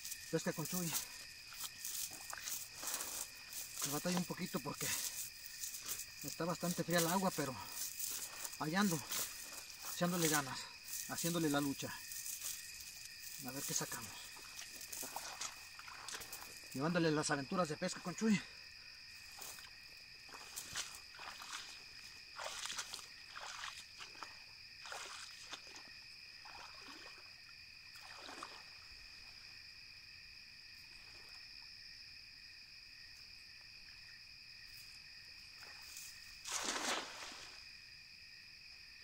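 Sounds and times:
footsteps through grass: 0.0s - 16.9s, 19.0s - 26.0s, 34.7s - 37.7s
crickets trilling: 0.0s - 39.0s.

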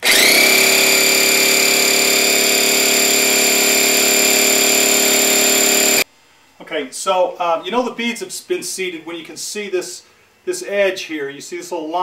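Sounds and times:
electric air compressor running: 0.0s - 6.0s.

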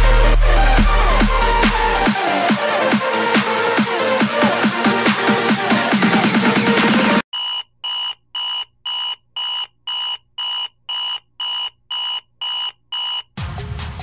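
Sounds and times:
electronic dance music: 0.0s - 7.2s.

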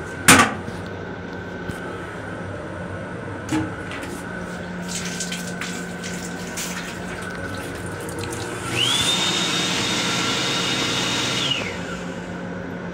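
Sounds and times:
steady hum: 0.0s - 9.2s, 11.7s - 12.9s
faucet water running into basin: 4.8s - 9.2s
motor whine: 5.6s - 12.9s.

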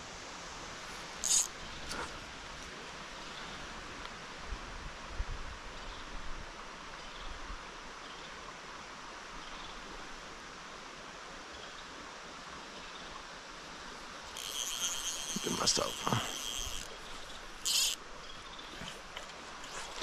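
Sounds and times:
rocky stream flowing: 10.0s - 20.0s.

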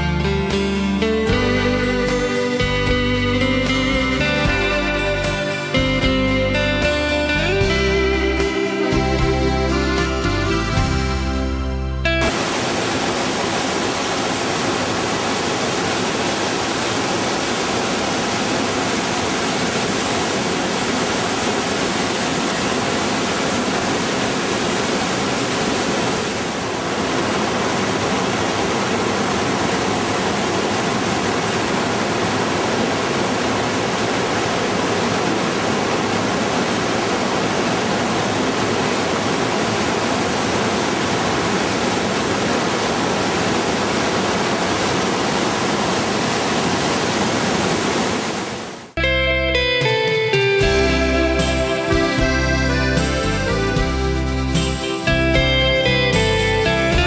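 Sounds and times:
waterfall rushing: 12.1s - 49.0s.

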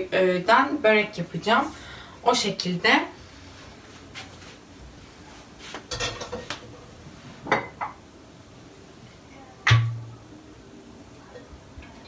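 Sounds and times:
pots and pans clattering: 5.9s - 6.6s, 7.4s - 8.0s.

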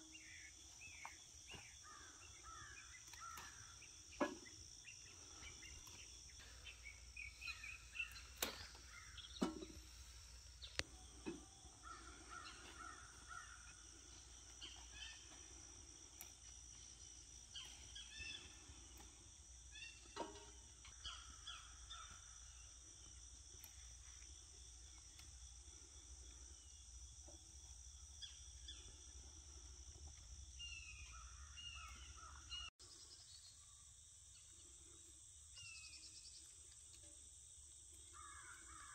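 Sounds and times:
birds calling: 0.0s - 22.8s, 28.0s - 32.7s
crickets and insects droning: 0.0s - 38.9s
crows cawing: 1.8s - 3.8s, 11.7s - 14.1s, 38.2s - 38.9s.

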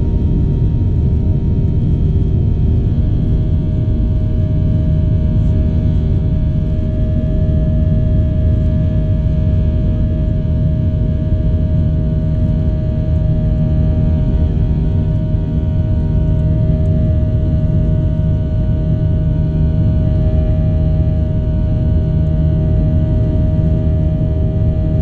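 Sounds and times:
jet engines rumbling in cabin: 0.0s - 25.0s.

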